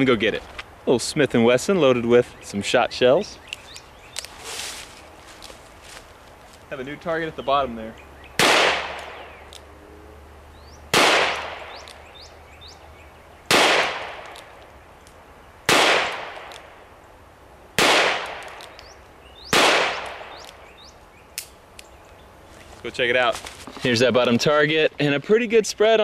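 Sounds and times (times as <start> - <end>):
revolver gunshots with echo: 8.4 - 9.4, 10.9 - 12.0, 13.5 - 14.6, 15.7 - 16.8, 17.8 - 18.8, 19.5 - 20.6.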